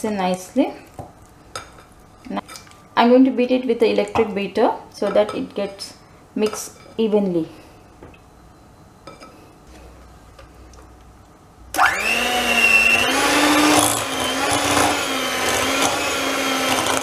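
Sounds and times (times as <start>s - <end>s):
electric hand mixer whining: 11.8s - 17.0s.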